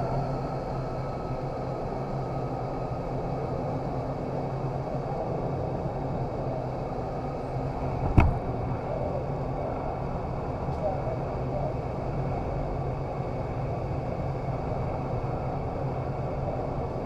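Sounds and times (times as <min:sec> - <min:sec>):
low fan hum: 0:00.0 - 0:17.0
rush of airflow: 0:07.8 - 0:08.7
sharp knock: 0:08.0 - 0:08.4.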